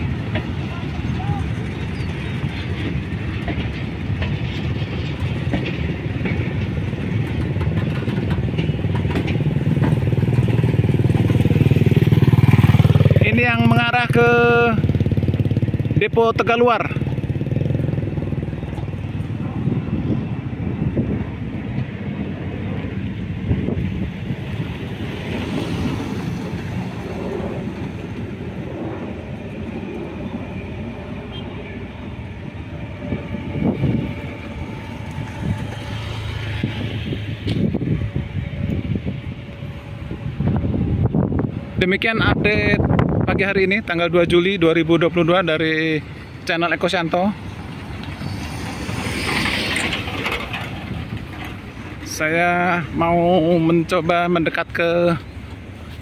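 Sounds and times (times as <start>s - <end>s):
train wagons rolling on track: 0.0s - 56.0s
motorcycle engine: 9.6s - 20.8s.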